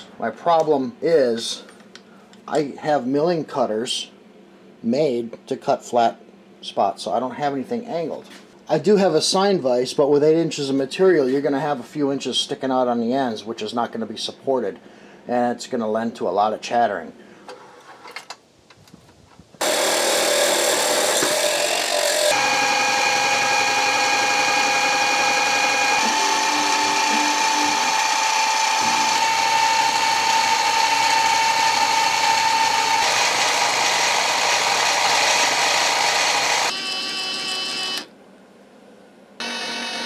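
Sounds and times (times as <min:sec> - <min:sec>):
end mill grinding steel: 0:19.6 - 0:36.7
motor and spindle whine: 0:19.6 - 0:38.1.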